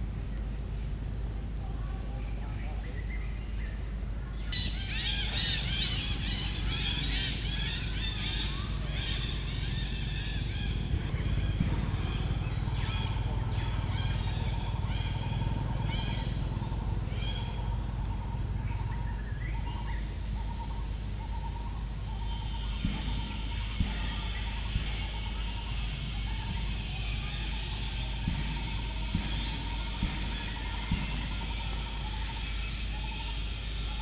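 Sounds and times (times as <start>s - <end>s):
shrill squawking animal calls: 4.6s - 18.4s.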